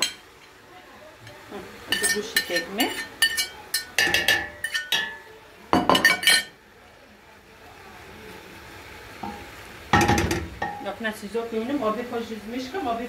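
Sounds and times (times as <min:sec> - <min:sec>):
fork clinking on ceramic plate: 0:01.9 - 0:05.2.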